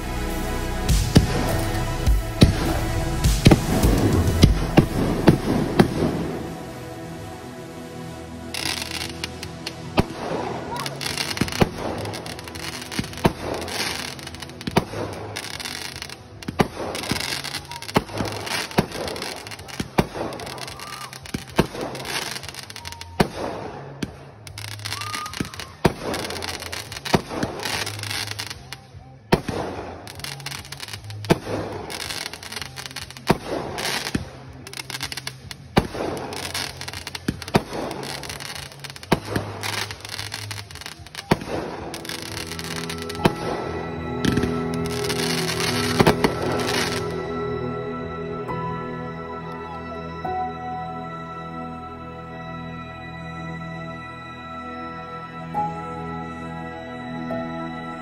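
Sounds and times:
fireworks bangs: 0.8 - 6.7, 8.5 - 28.6, 29.3 - 47.3.

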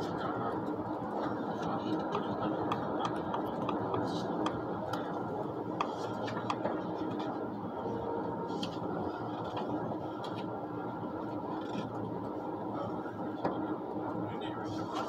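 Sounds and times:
train cabin running noise: 0.0 - 15.0.

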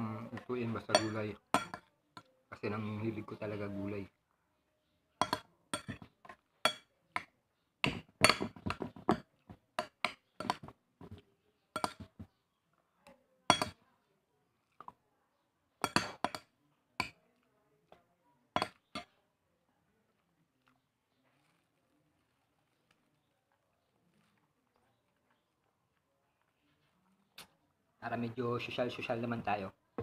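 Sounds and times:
metal spoon scraping a bowl: 0.8 - 1.9, 5.2 - 7.3.

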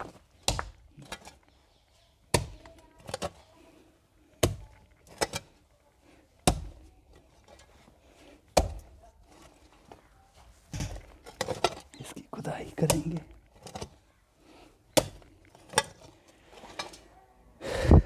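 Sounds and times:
clinks and scrapes of stones: 0.0 - 17.2
hoe striking stony soil: 6.4 - 6.9, 8.5 - 9.0.

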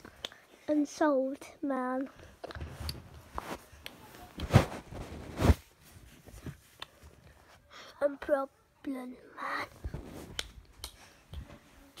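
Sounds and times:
rustling against the microphone: 2.2 - 7.7, 9.6 - 10.7.

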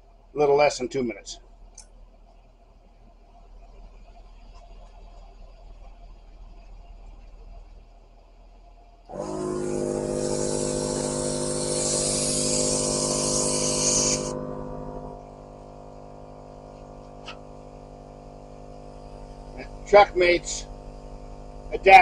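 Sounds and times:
loud air hiss: 9.1 - 20.9
air compressor running: 9.1 - 22.0.

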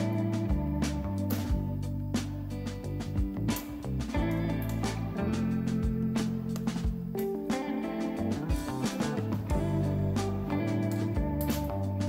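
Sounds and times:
lo-fi music held notes: 0.0 - 12.0.

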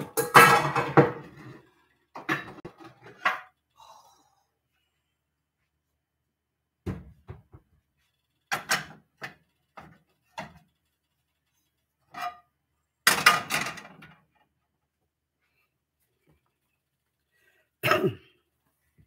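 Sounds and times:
frying pans knocking and clattering: 0.0 - 1.6, 2.2 - 3.6, 8.5 - 10.6, 13.1 - 14.2.

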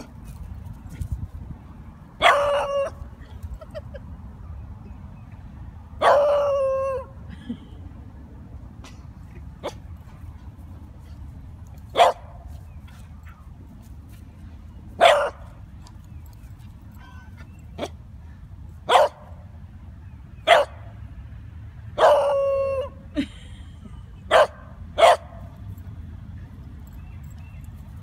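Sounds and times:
puppy barking: 2.2 - 2.9, 12.0 - 12.3, 15.0 - 15.4, 18.9 - 19.2, 20.5 - 20.8, 24.3 - 25.4.

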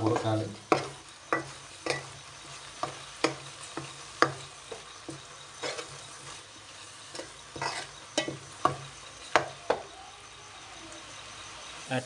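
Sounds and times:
light hiss: 0.0 - 12.0
spoon scraping metal pot: 0.1 - 6.5, 7.1 - 9.5.

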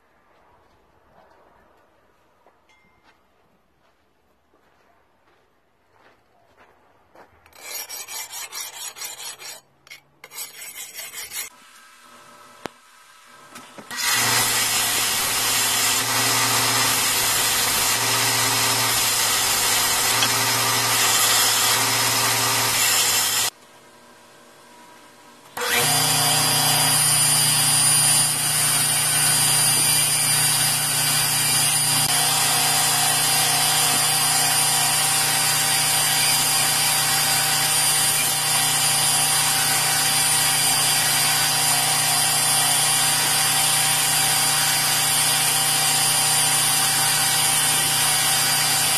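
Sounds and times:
belt grinder grinding knife blade: 7.5 - 11.5, 13.9 - 23.5.

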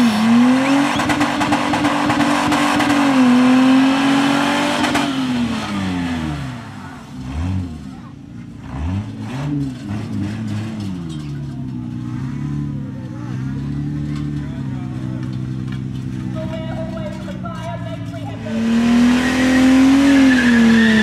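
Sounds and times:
car engine revving: 0.0 - 17.4, 18.0 - 21.0
tyres squealing: 16.0 - 21.0.

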